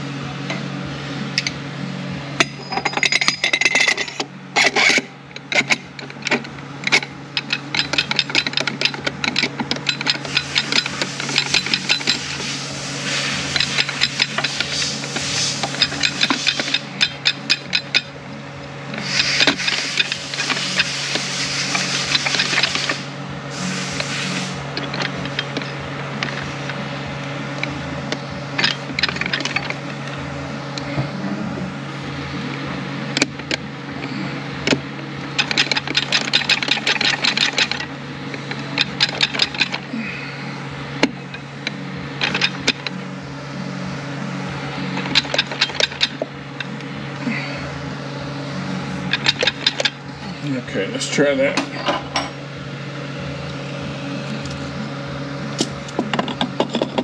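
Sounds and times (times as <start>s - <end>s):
low mechanical hum: 0.0s - 57.0s
metal clicking and rattling: 2.4s - 12.5s, 13.5s - 18.1s, 18.9s - 23.0s, 24.8s - 26.8s, 27.6s - 30.0s, 35.4s - 39.8s, 41.0s - 43.0s, 44.9s - 46.8s, 49.1s - 50.0s.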